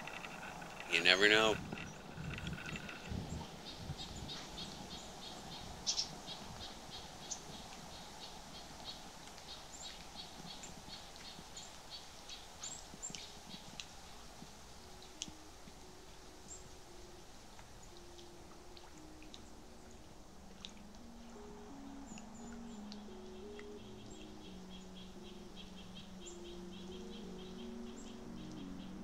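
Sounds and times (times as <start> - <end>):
bird chirping: 0.0 - 14.2, 21.0 - 29.0.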